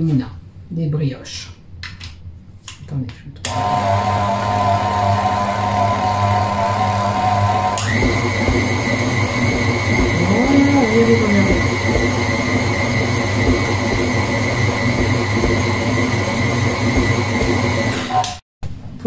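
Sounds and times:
stand mixer motor whining: 3.5 - 18.4.

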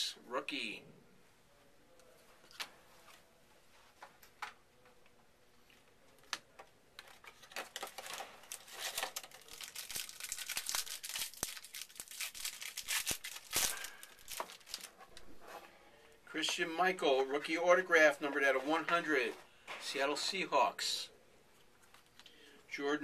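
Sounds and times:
wrapper tearing and crinkling: 7.3 - 15.0.

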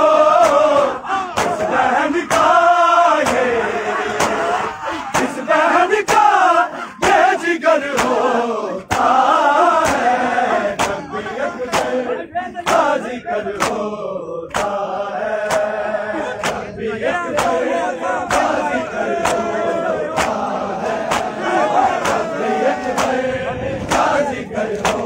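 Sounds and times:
crowd of men chanting: 0.0 - 25.0
hands slapping bare chests: 1.4 - 1.7, 2.3 - 2.6, 3.2 - 3.5, 4.1 - 4.5, 5.1 - 5.4, 6.0 - 6.3, 7.9 - 8.2, 8.9 - 9.2, 9.8 - 10.1, 10.8 - 11.1, 11.7 - 12.0, 12.6 - 12.9, 13.6 - 13.8, 14.5 - 14.8, 15.4 - 15.8, 16.4 - 16.7, 17.4 - 17.6, 18.3 - 18.6, 19.2 - 19.5, 20.1 - 21.4, 22.0 - 22.3, 22.9 - 23.2, 24.8 - 25.0.

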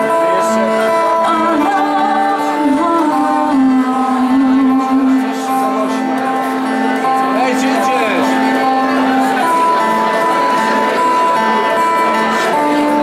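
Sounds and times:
woman singing long notes: 0.0 - 6.0
strummed acoustic guitars: 0.0 - 13.0.

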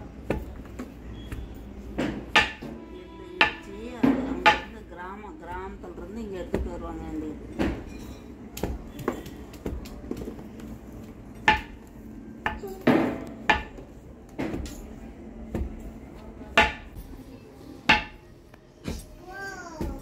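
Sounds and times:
pestle pounding in a mortar: 11.4 - 11.9, 12.5 - 14.7.

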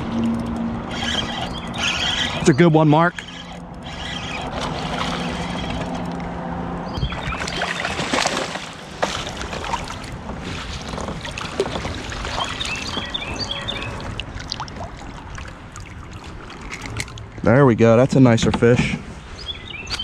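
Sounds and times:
water splashing around kayak: 0.9 - 6.2, 6.9 - 17.6
knocks and clicks against hull: 6.9 - 14.9.

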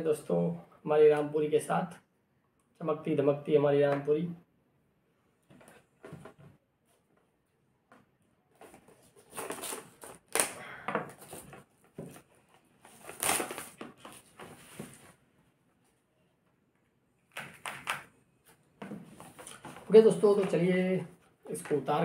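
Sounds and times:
packaging scraping and rustling: 8.6 - 10.4, 11.1 - 15.2
knife cutting cardboard box seal: 12.9 - 14.1.

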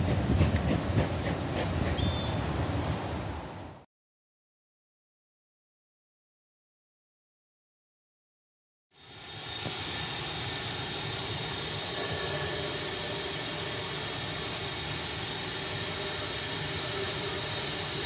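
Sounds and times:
steam locomotive letting off steam: 8.9 - 18.0.

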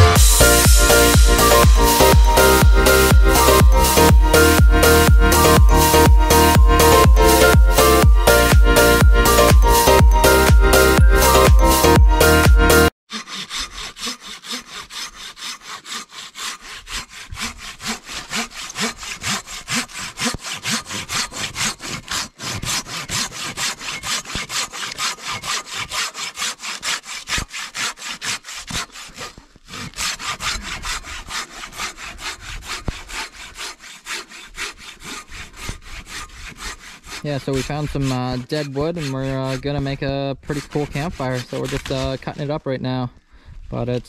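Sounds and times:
hand saw cutting through log: 0.0 - 42.8.

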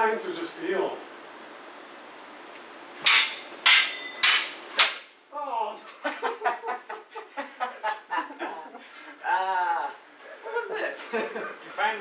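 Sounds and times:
sabre blades clashing: 3.0 - 5.1.

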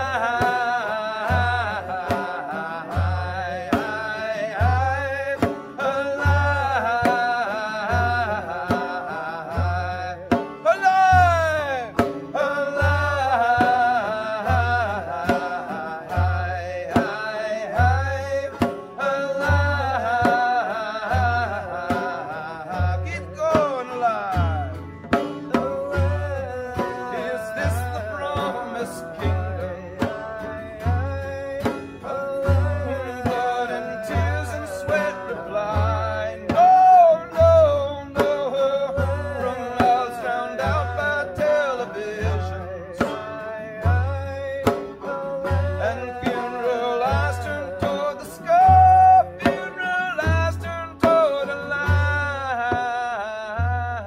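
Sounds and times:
banjo and guitar: 0.0 - 54.0
barrel drum beat: 0.0 - 54.0.

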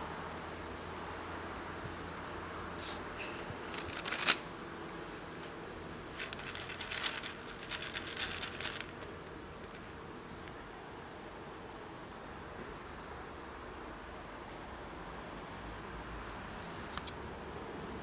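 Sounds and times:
kibble rattling in plastic tub: 3.6 - 4.4, 6.1 - 9.8.

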